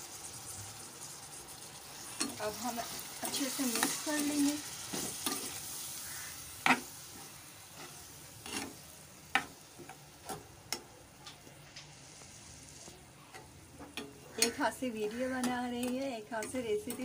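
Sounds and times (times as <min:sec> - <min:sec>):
faint sizzle: 0:00.0 - 0:17.0
metal spoon scraping pan: 0:02.0 - 0:10.8, 0:13.2 - 0:17.0
spoon clinking against pan: 0:13.9 - 0:17.0.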